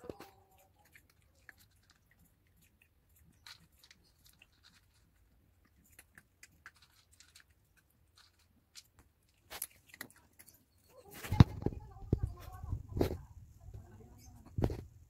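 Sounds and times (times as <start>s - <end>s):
dog crunching kibble: 0.0s - 11.8s.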